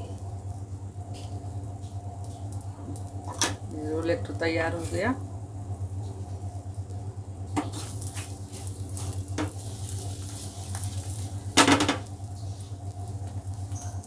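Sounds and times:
steady low hum: 0:00.0 - 0:14.0
frying pan clattering: 0:09.0 - 0:12.2
frying pan knocking: 0:09.3 - 0:09.6, 0:11.5 - 0:12.2.

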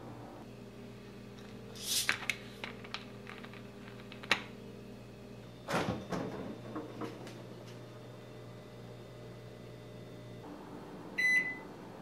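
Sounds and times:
door and shelves clicking: 0:05.7 - 0:07.3.

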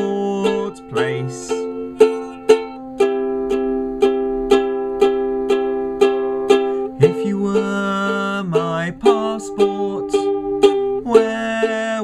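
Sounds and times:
man singing a long note: 0:00.0 - 0:02.5, 0:07.0 - 0:10.2, 0:11.0 - 0:12.0
ukulele strumming: 0:00.0 - 0:12.0.

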